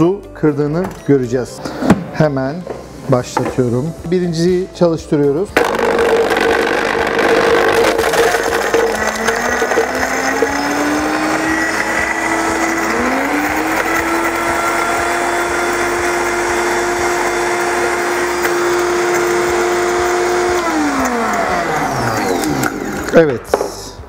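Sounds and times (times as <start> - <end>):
ice being smashed: 5.6 - 11.2
blender motor whine: 5.6 - 23.2.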